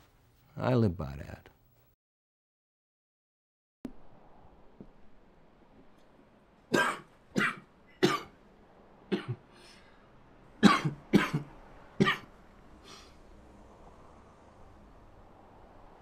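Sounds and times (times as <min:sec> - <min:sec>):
man coughing: 0:06.7 - 0:08.3, 0:09.1 - 0:09.4, 0:10.6 - 0:12.3.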